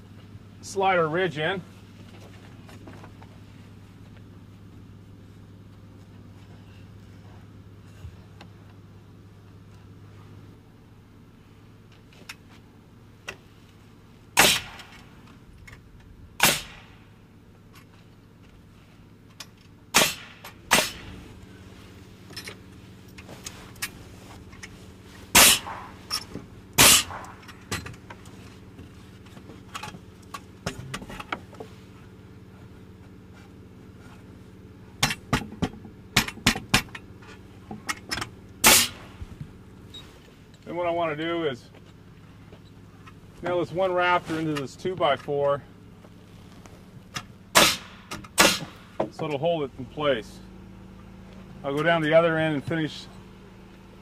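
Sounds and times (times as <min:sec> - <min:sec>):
nail gun firing: 0:14.4 - 0:15.0, 0:16.4 - 0:16.9, 0:19.9 - 0:21.1, 0:25.3 - 0:25.9, 0:26.8 - 0:27.4, 0:38.6 - 0:39.0, 0:47.5 - 0:48.8.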